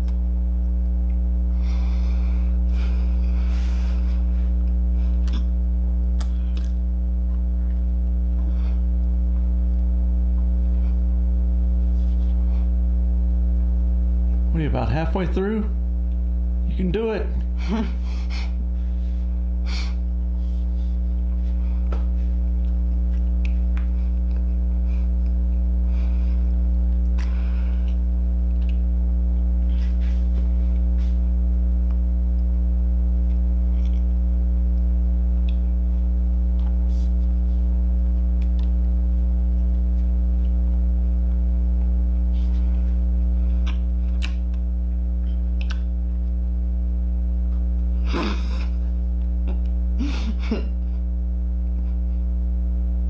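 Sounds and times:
electrical mains hum: 0:00.0 - 0:53.0
chewing crunches: 0:04.6 - 0:05.6, 0:06.2 - 0:08.6, 0:26.9 - 0:29.9, 0:33.2 - 0:34.2, 0:43.4 - 0:46.3.

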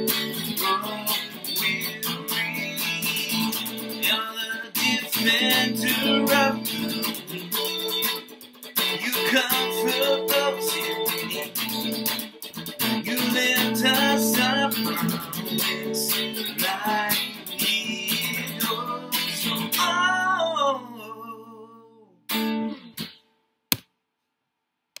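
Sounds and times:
man singing: 0:00.0 - 0:07.9, 0:08.8 - 0:11.7, 0:12.8 - 0:22.1
electric guitar strumming chords: 0:00.0 - 0:20.9.

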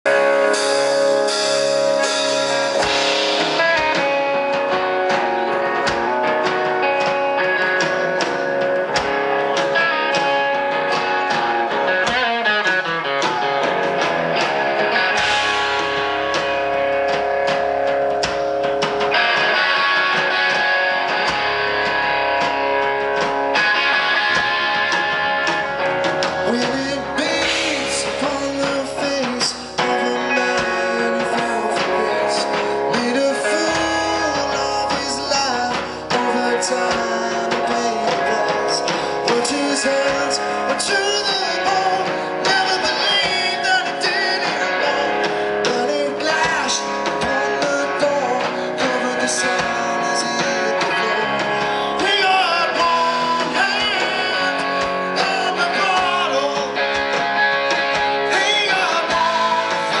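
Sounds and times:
bass guitar: 0:00.0 - 1:00.0
drum kit: 0:00.0 - 1:00.0
electric guitar: 0:00.0 - 1:00.0
man singing: 0:26.2 - 0:57.2, 0:58.2 - 1:00.0.

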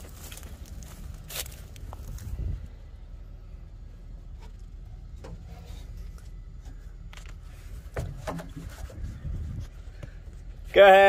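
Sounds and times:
low engine rumble: 0:00.0 - 0:11.0
knocks and creaks in truck cab: 0:04.3 - 0:10.6.

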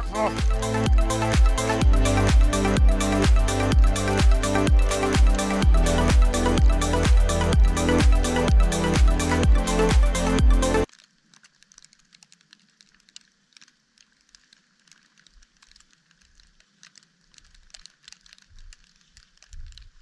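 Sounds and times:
soft low thumps: 0:00.0 - 0:10.6
music: 0:00.0 - 0:10.9.

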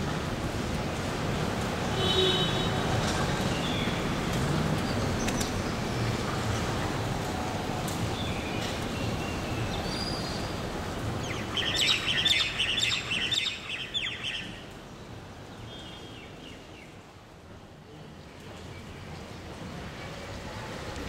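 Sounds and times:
birds chirping: 0:08.2 - 0:14.8.

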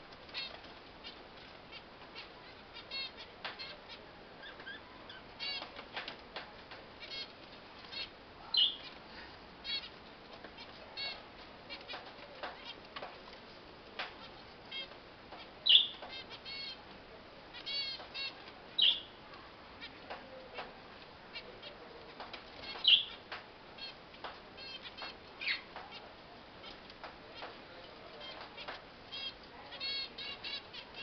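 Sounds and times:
finches calling: 0:00.3 - 0:05.9, 0:07.0 - 0:09.0, 0:09.6 - 0:10.0, 0:14.2 - 0:16.8, 0:17.5 - 0:20.7, 0:21.3 - 0:23.2, 0:24.6 - 0:31.0.

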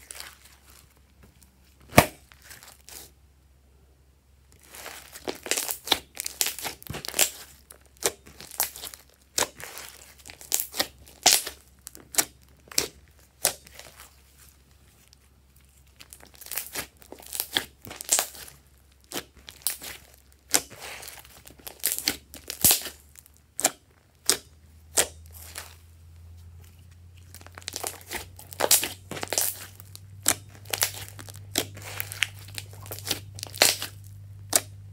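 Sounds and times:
slime popping and crackling: 0:04.6 - 0:14.2, 0:15.8 - 0:25.8, 0:27.2 - 0:34.9.

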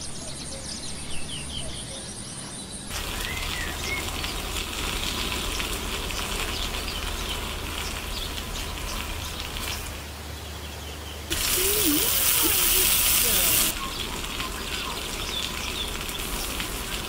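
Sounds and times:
birds chirping faintly: 0:00.0 - 0:17.0
water spray hissing: 0:02.9 - 0:10.4, 0:11.3 - 0:17.0.

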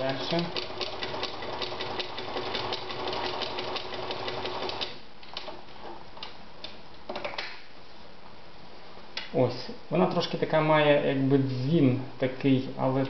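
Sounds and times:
sewing machine clatter: 0:00.0 - 0:05.5.

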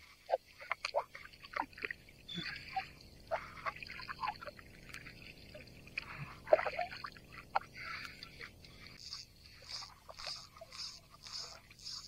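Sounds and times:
water splashing and dripping: 0:00.0 - 0:12.0.

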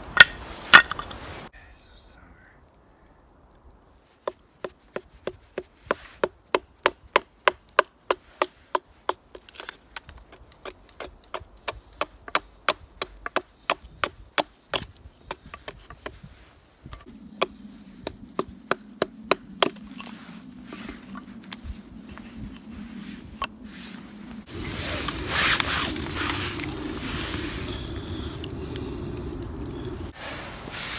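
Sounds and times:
hatchet chopping wood: 0:04.2 - 0:16.2, 0:17.3 - 0:20.1.

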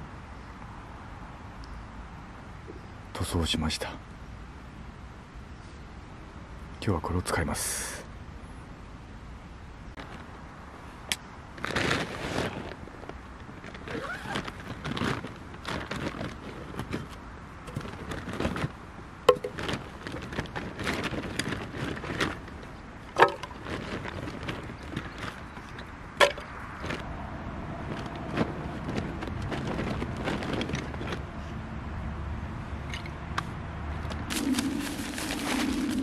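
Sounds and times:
handling clatter: 0:13.5 - 0:27.1.

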